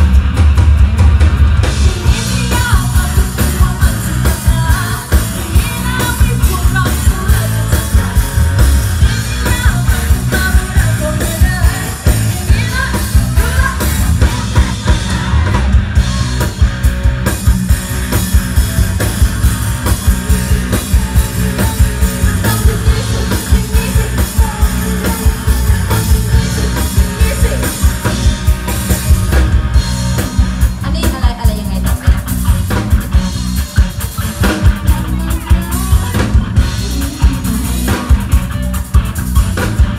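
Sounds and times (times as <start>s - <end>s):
driving drum beat: 0.0s - 39.9s
live band playing pop-rock: 0.0s - 39.9s
woman singing into a microphone: 2.0s - 8.5s, 9.1s - 14.4s, 21.4s - 27.9s.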